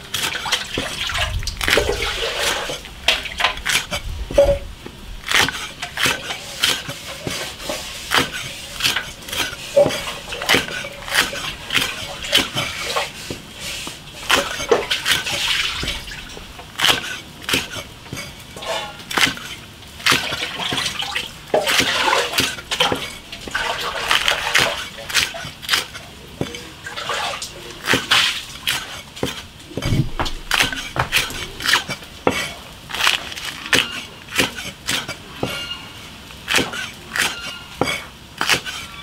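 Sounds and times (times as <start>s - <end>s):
water sloshing and splashing: 0.0s - 39.0s.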